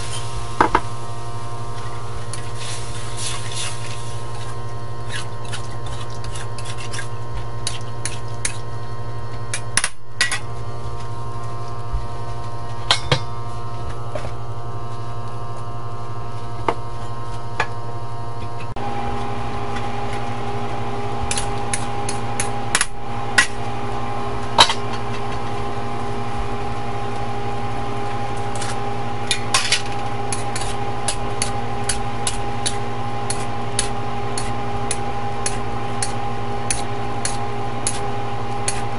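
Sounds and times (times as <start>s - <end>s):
steady background hum: 0.0s - 38.9s
metal spatula scraping a wok: 2.5s - 7.2s.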